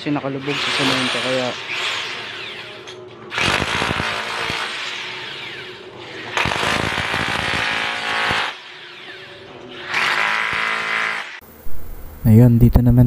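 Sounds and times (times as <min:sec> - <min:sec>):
chipping hammer on concrete: 0:03.4 - 0:04.8.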